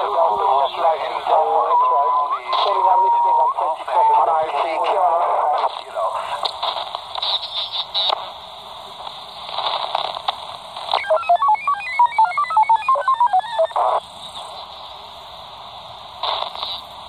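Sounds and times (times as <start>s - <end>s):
radio static hiss: 0.0s - 17.0s
electronic beep tones: 1.6s - 3.6s, 11.0s - 14.0s.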